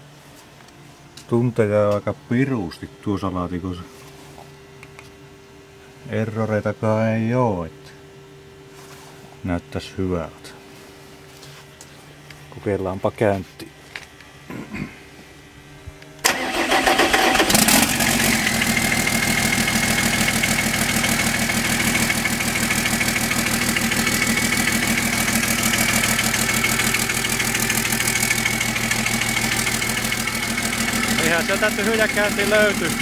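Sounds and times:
diesel engine starting and idling: 16.2s - 33.0s.

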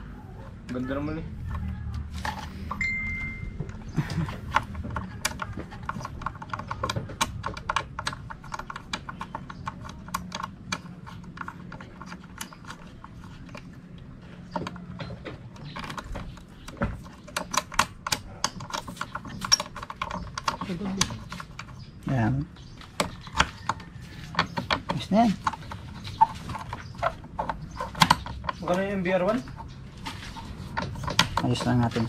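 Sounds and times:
low steady hum: 0.0s - 6.6s.

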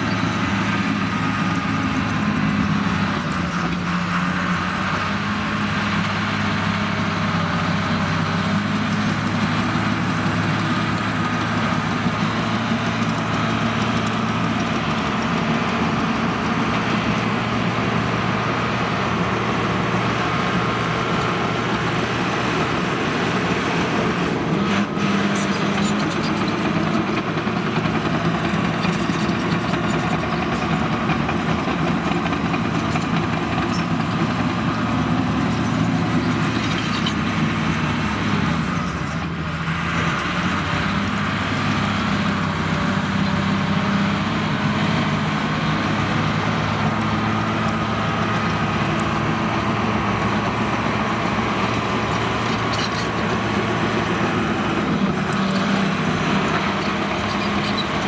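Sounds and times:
bulldozer diesel engine under load: 0.0s - 58.0s.

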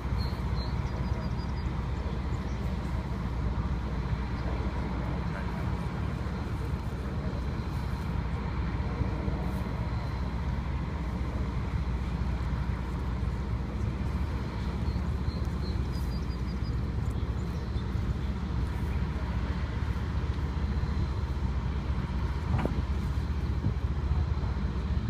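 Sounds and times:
road traffic rumble: 0.0s - 25.0s.

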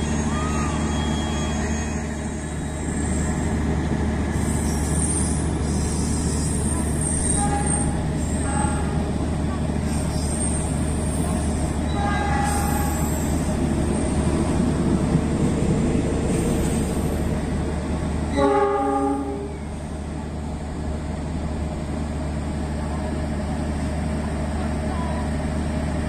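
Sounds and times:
locomotive engine rumble: 0.0s - 26.0s
train horn: 7.3s - 9.1s, 11.9s - 13.1s, 18.3s - 19.6s.

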